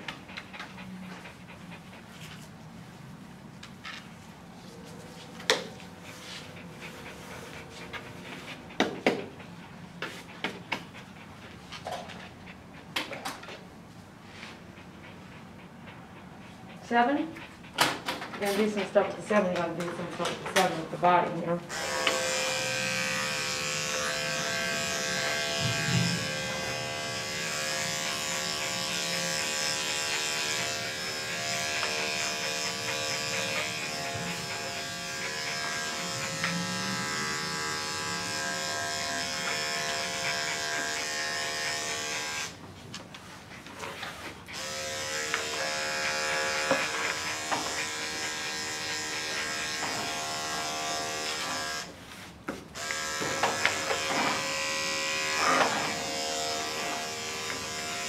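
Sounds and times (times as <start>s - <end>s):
electric clippers buzzing: 21.7s - 42.6s, 44.5s - 51.9s, 52.8s - 58.0s.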